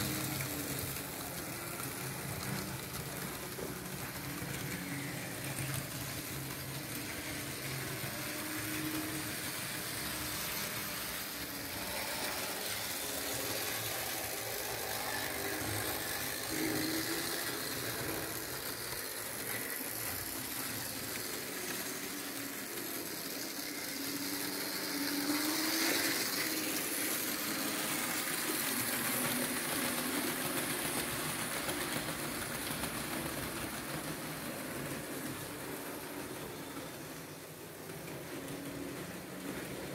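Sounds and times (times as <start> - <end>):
model train motor humming: 0.0 - 39.9
wheels rattling on track: 12.8 - 39.9.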